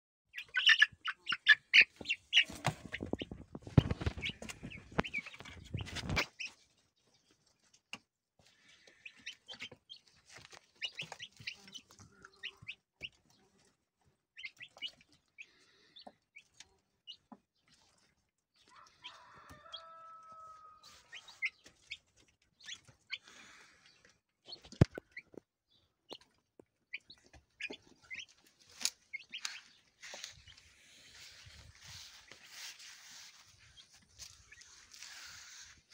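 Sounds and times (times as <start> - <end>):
chicks peeping and chirping: 0.3 - 35.9
wing flapping: 2.3 - 6.4.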